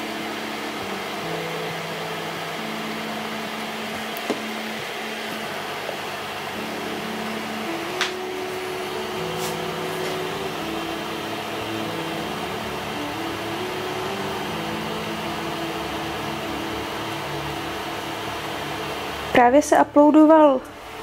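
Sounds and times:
hum stepping in pitch: 0.0s - 19.6s.

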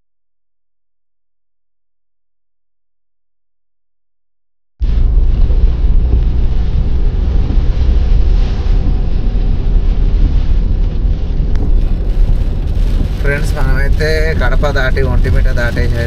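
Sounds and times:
car wind and road noise: 4.8s - 16.0s.

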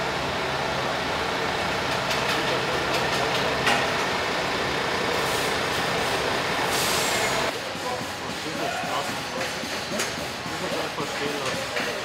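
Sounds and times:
truck diesel engine idling: 0.0s - 7.5s.

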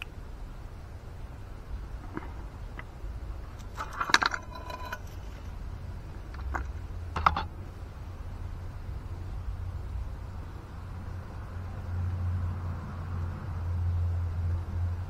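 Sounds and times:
metallic clink and ring: 3.8s - 5.2s.

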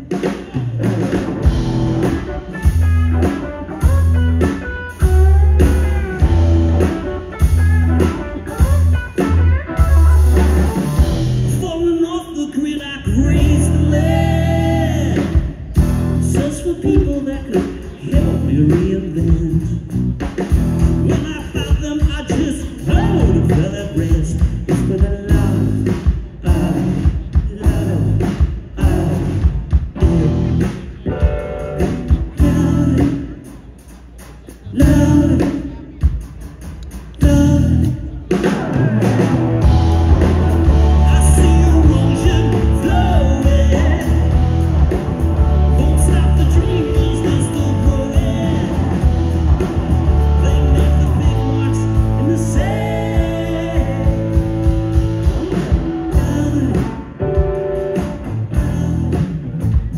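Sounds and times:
live rock band playing: 0.0s - 59.9s
person singing: 11.5s - 15.6s, 32.1s - 33.6s, 34.6s - 36.4s, 37.2s - 44.6s, 45.4s - 49.1s, 50.1s - 54.8s, 56.1s - 57.6s, 58.2s - 59.4s.

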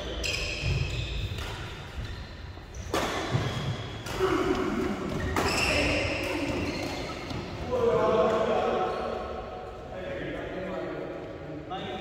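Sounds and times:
rackets striking shuttlecock: 0.3s - 2.1s.

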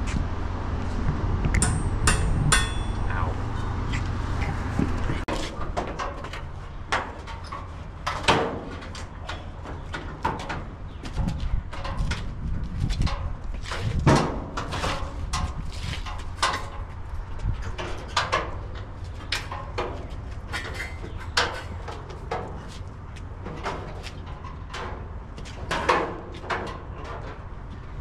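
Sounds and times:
low rumble: 0.0s - 5.7s
steel car body clunking and scraping: 0.8s - 28.0s.

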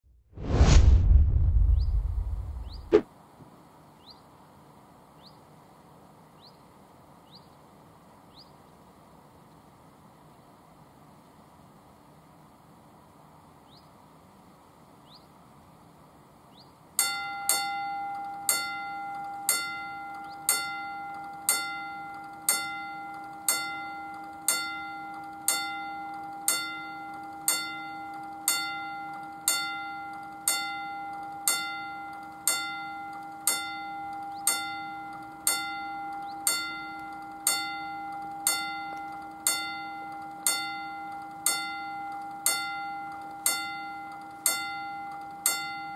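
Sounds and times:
level crossing warning bell: 17.0s - 45.9s.

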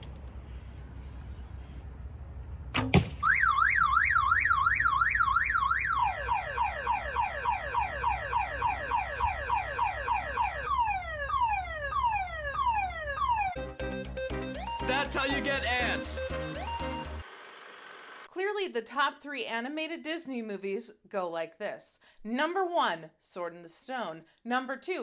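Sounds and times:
sharp crack: 2.7s - 3.3s
car alarm: 3.2s - 17.2s.

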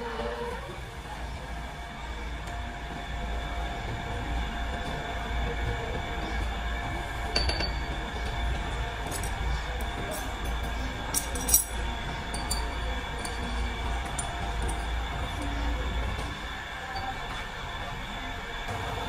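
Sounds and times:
workshop machinery hum: 0.0s - 19.0s
metal tools clinking on lathe chuck: 9.1s - 14.9s.

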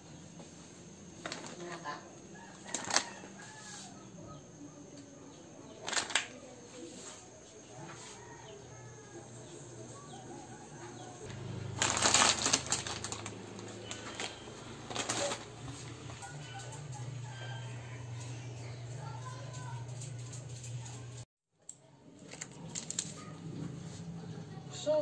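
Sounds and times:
plastic packet crinkling: 1.2s - 1.7s, 2.6s - 3.2s, 5.8s - 6.3s, 11.7s - 16.3s, 22.2s - 23.2s.

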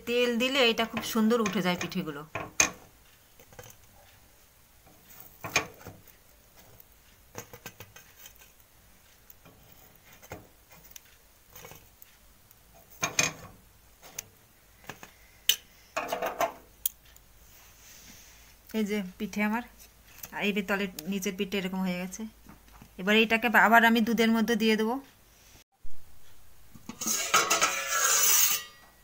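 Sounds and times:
utensil clicking and scraping on pan: 0.6s - 4.2s, 4.8s - 17.3s, 26.8s - 28.8s
pan clattering: 12.8s - 13.6s, 26.8s - 29.0s.

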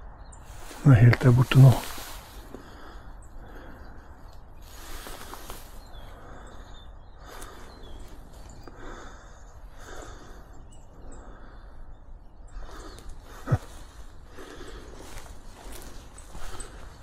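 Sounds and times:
small birds chirping: 0.0s - 17.0s
footsteps on forest floor: 0.5s - 3.0s, 4.6s - 6.2s, 12.6s - 17.0s.

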